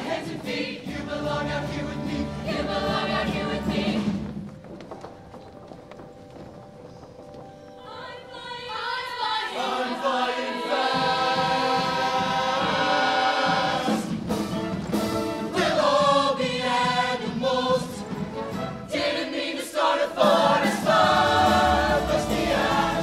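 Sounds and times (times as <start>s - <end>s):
choir singing sustained chords: 0.0s - 4.2s, 7.8s - 14.2s, 15.4s - 23.0s
sharp choral hits: 9.6s - 23.0s.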